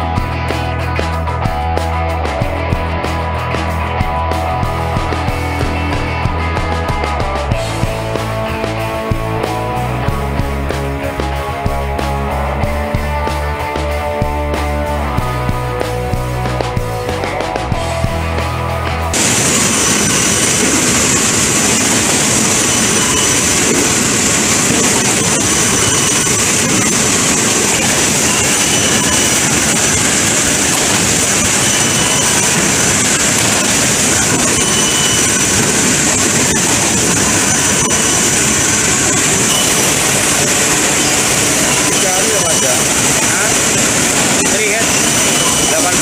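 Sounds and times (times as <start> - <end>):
industrial machinery running: 0.0 - 46.0
faint high whine: 19.2 - 46.0.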